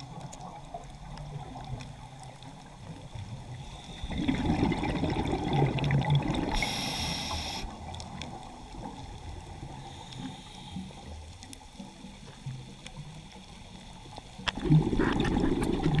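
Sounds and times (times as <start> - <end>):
exhaled bubbles underwater: 0.0 - 9.8, 14.5 - 16.0
regulator inhalation hiss: 6.5 - 7.8, 9.8 - 11.1.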